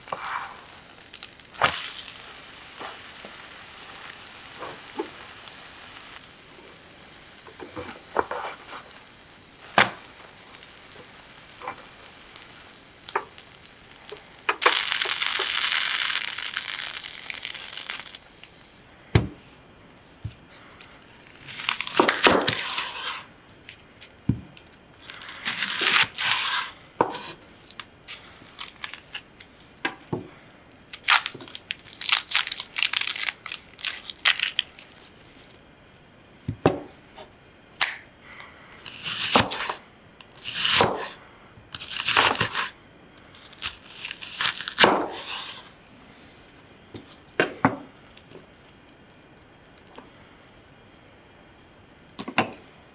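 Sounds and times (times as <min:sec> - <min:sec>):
onion skin crackling: 0:00.0 - 0:06.4, 0:07.4 - 0:18.7, 0:20.6 - 0:29.7, 0:30.9 - 0:35.6, 0:37.8 - 0:46.5
steady hiss: 0:00.0 - 0:52.9.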